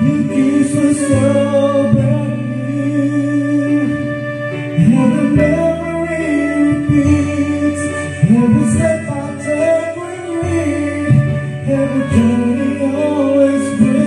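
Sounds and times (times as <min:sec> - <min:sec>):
karaoke ballad with singing: 0:00.0 - 0:14.0.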